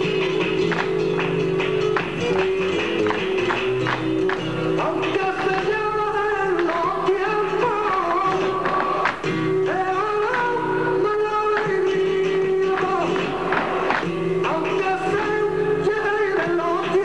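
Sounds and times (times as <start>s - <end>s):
flamenco dance music: 0.0s - 17.0s
person singing: 4.8s - 17.0s.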